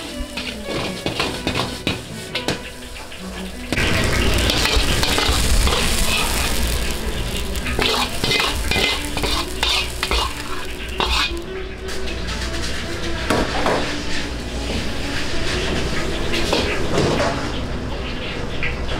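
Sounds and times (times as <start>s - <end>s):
metal spatula scraping a wok: 0.0s - 12.9s
rice sizzling in a wok: 0.0s - 17.0s
low rumble: 3.5s - 11.7s.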